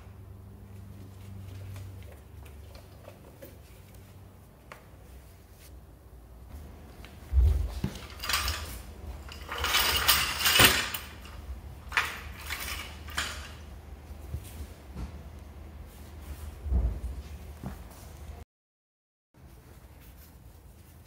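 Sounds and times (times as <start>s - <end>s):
metal tools clinking and clattering: 7.8s - 13.7s.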